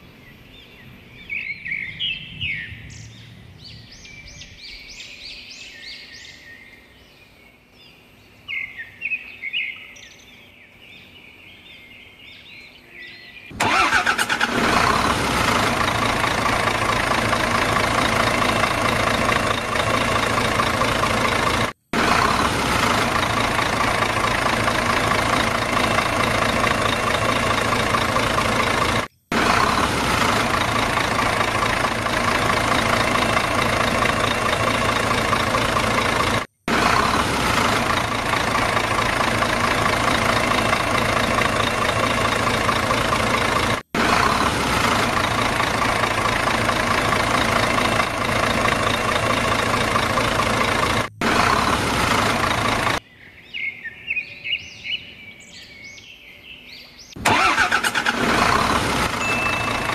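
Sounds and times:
engine sound effect: 0:13.5 - 0:53.0, 0:57.2 - 0:59.9.

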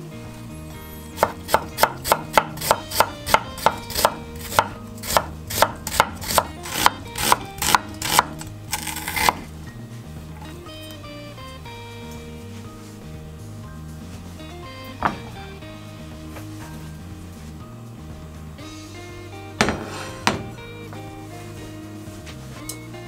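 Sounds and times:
knife chopping on cutting board: 0:01.2 - 0:09.4, 0:19.6 - 0:20.5
knife scraping board: 0:01.2 - 0:09.5, 0:19.6 - 0:20.5.

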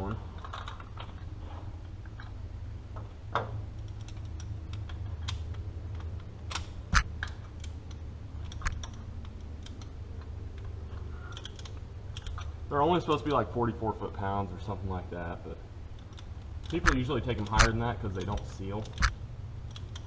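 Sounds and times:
steady low hum: 0:00.0 - 0:20.0
metallic clicks of wrench: 0:03.7 - 0:13.4, 0:15.9 - 0:20.0.

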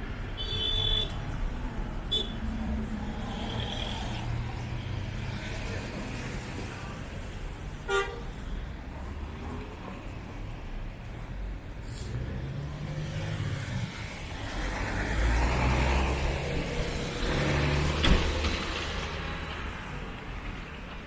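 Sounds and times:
vehicle passing close: 0:12.0 - 0:19.9.

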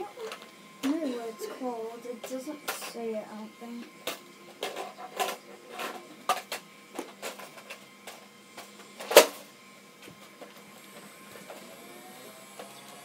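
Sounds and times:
toy blasters clicking and knocking: 0:02.2 - 0:03.0, 0:03.8 - 0:09.4.

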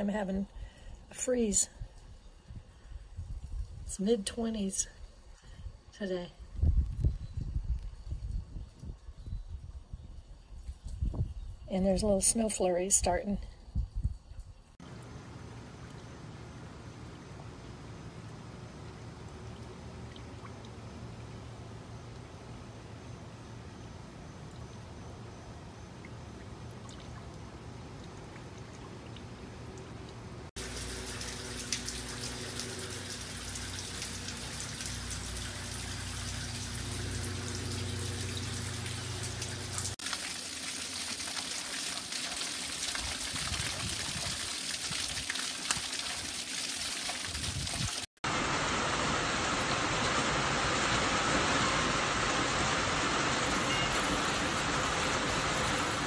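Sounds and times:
low steady hum: 0:11.4 - 0:40.0
rain hiss: 0:14.3 - 0:26.6, 0:30.5 - 0:56.0
water trickling down rain chain: 0:24.3 - 0:56.0.

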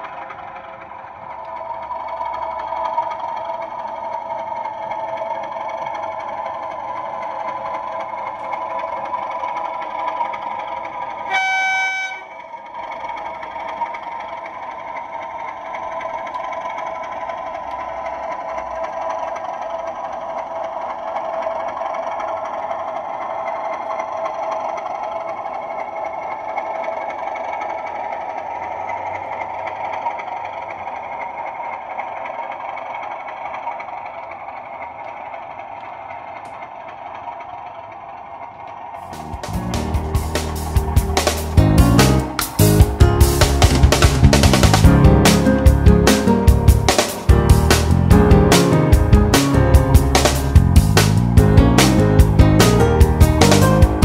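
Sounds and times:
model train droning hum: 0:00.0 - 0:54.0
train horn blast: 0:11.3 - 0:12.4.

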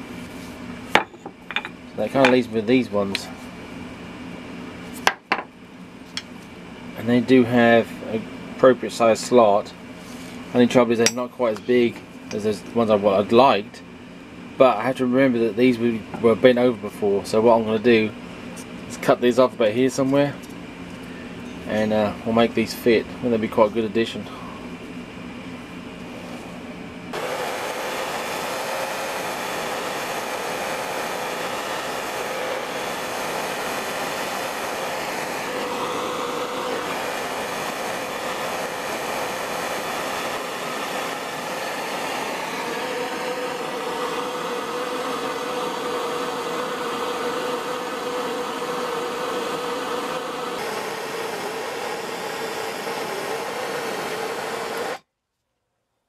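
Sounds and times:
gas torch hissing: 0:27.1 - 0:55.0.

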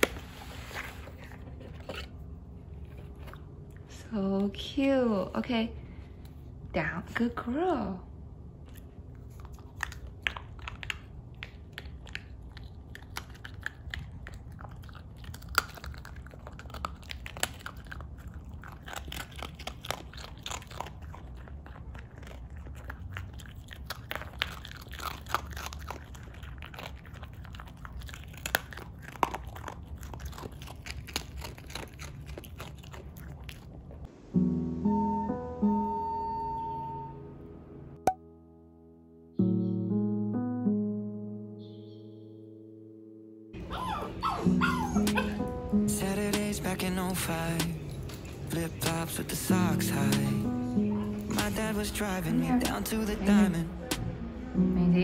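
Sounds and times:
dog crunching a biscuit: 0:08.6 - 0:34.1.

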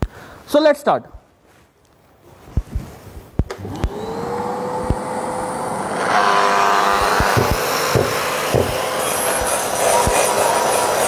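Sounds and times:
grinder motor whining: 0:03.5 - 0:11.0
knocks: 0:07.0 - 0:08.8.

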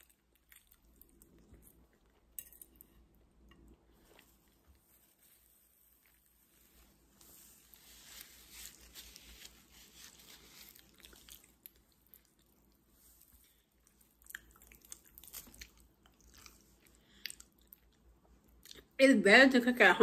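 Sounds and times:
person chewing: 0:00.0 - 0:04.9, 0:08.2 - 0:18.9.

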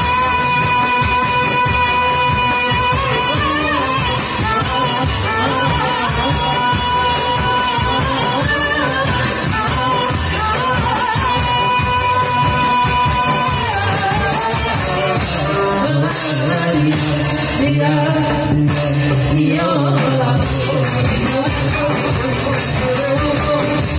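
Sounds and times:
woman singing ornamented melody: 0:00.0 - 0:17.0
lower voice singing: 0:00.0 - 0:23.9.

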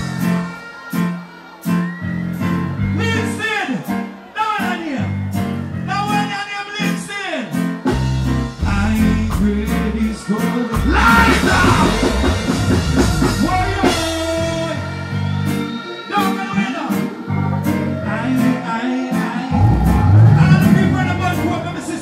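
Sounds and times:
bass-heavy backing music: 0:00.0 - 0:22.0
person singing into microphone: 0:08.6 - 0:12.6, 0:13.4 - 0:22.0.

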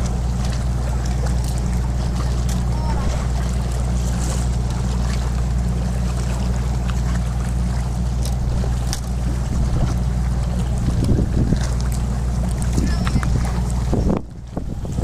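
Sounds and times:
boat engine droning: 0:00.0 - 0:15.0
water noise: 0:00.0 - 0:15.0
wind noise: 0:10.7 - 0:11.8, 0:12.7 - 0:15.0.

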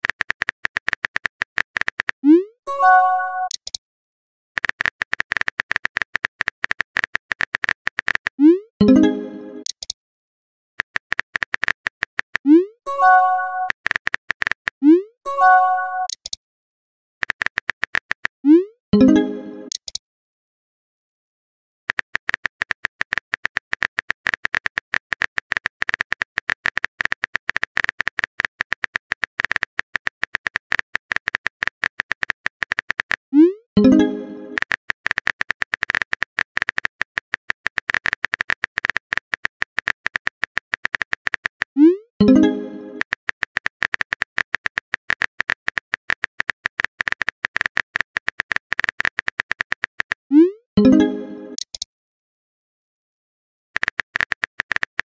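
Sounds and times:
phone keyboard tapping clicks: 0:00.0 - 0:02.2, 0:04.6 - 0:08.4, 0:10.8 - 0:12.5, 0:13.6 - 0:14.8, 0:17.2 - 0:18.4, 0:21.9 - 0:33.2, 0:33.8 - 0:50.2, 0:53.8 - 0:55.0
message pop sound: 0:08.4 - 0:09.8, 0:18.5 - 0:19.8, 0:33.4 - 0:34.8, 0:41.8 - 0:43.2, 0:50.3 - 0:51.8.

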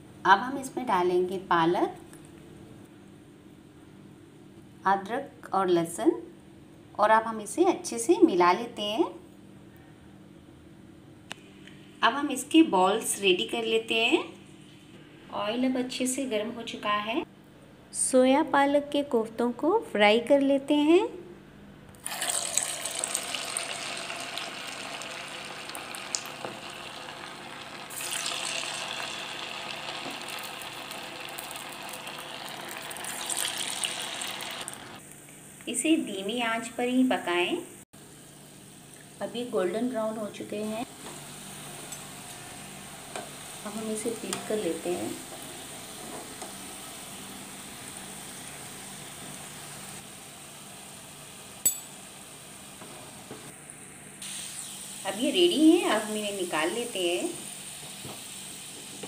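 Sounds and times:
food deep-frying in hot oil: 0:22.0 - 0:35.8, 0:38.3 - 0:53.2, 0:54.2 - 0:59.0.

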